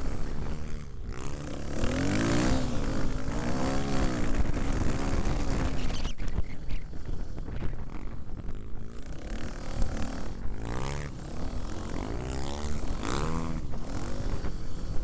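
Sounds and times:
dirt bike engine revving: 0.0 - 6.0, 7.2 - 15.0
wind noise on microphone: 2.6 - 11.3.

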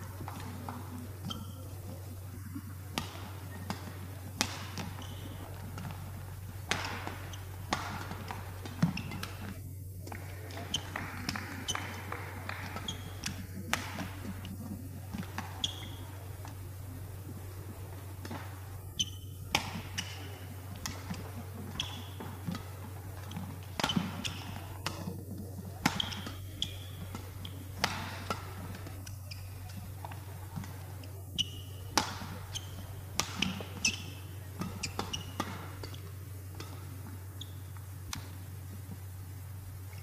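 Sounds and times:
steady low hum: 0.0 - 40.0
shoe squeaks on court: 1.2 - 1.8, 4.5 - 5.9, 6.9 - 9.6, 12.7 - 14.5, 15.2 - 16.4, 18.4 - 22.7, 25.9 - 28.6, 29.2 - 29.8, 31.4 - 36.0, 37.4 - 37.7
shuttlecock struck by rackets: 6.6 - 9.6, 18.2 - 25.1.

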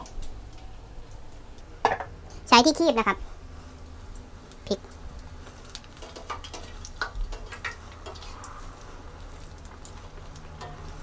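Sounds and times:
oil sizzling: 0.0 - 11.0
tongs clicking against pan: 5.6 - 8.5, 9.6 - 11.0.

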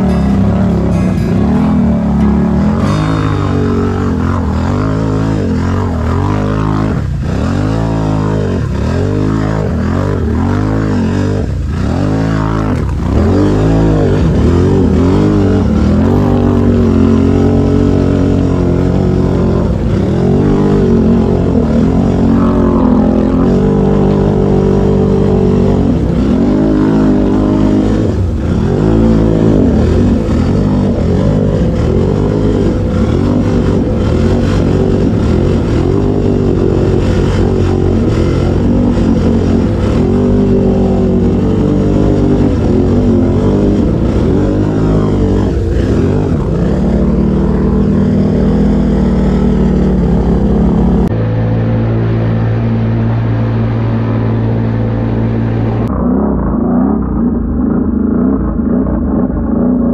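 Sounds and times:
atv engines revving: 0.0 - 59.9.

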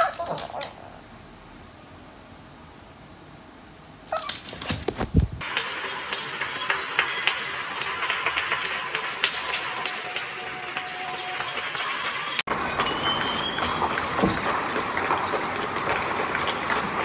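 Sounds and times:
crowd clapping and cheering: 5.4 - 17.0.

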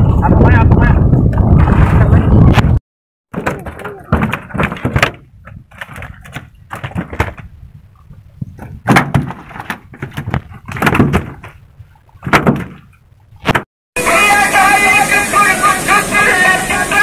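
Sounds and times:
irregular knocks and thumps: 3.3 - 13.7.

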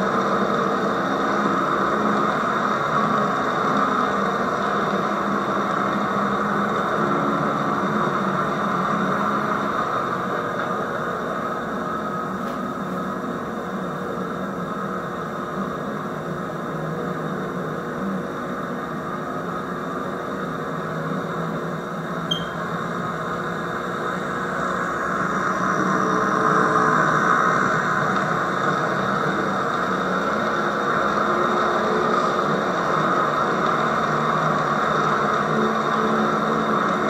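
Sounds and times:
model train motor and wheels whirring: 0.0 - 37.0.

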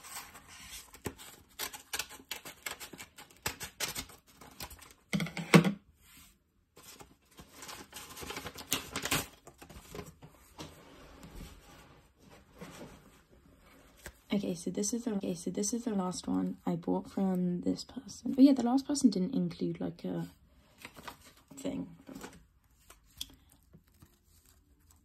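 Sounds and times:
cardboard rustling and crinkling: 6.0 - 14.3, 20.7 - 25.0.

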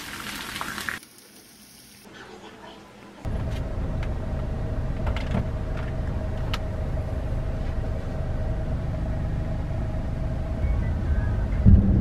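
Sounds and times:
car cabin road rumble: 3.2 - 12.0.

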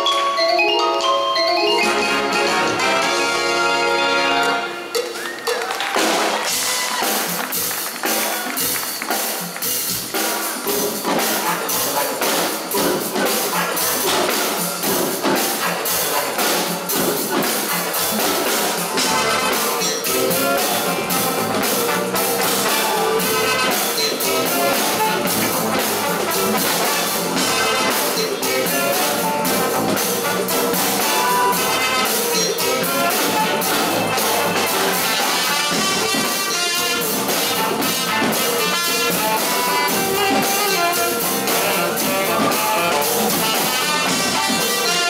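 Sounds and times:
drum kit beat: 0.0 - 45.0
upbeat band music: 0.0 - 45.0
wind instruments: 0.0 - 45.0.

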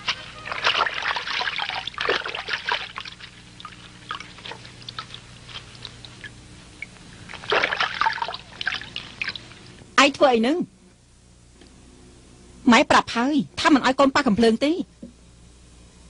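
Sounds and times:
faint low hum: 0.0 - 16.0
water splashing and trickling: 0.2 - 6.3, 7.2 - 9.8.

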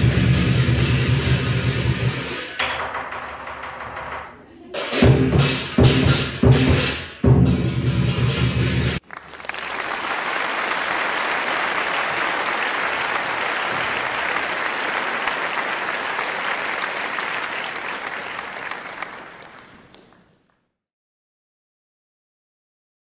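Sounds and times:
audience applauding: 9.0 - 20.6.

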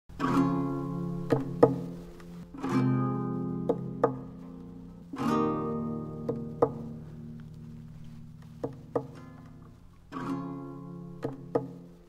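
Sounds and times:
short sharp taps: 6.2 - 7.6, 11.2 - 11.9.

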